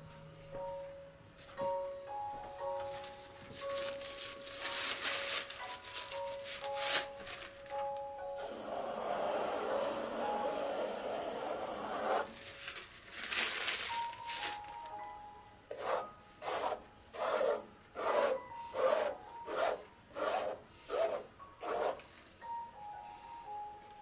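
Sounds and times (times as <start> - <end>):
soft background music: 0.0 - 24.0
palette knife scraping paint: 15.7 - 22.1.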